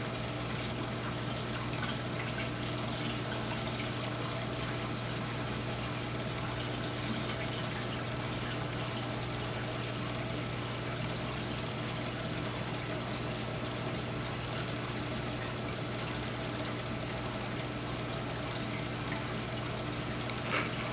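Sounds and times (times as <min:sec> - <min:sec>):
water trickling and pouring: 0:00.0 - 0:20.9.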